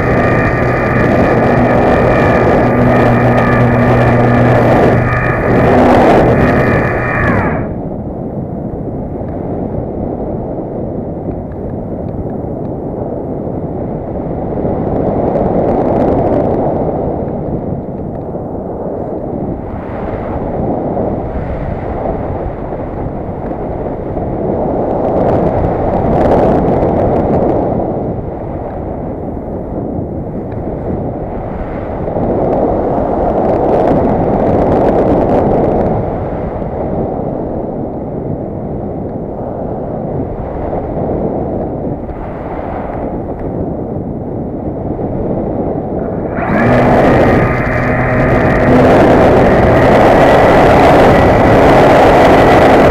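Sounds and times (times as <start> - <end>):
steady pitched hum: 0.0 - 8.2, 45.8 - 52.9
wind rushing over camera: 0.0 - 52.9.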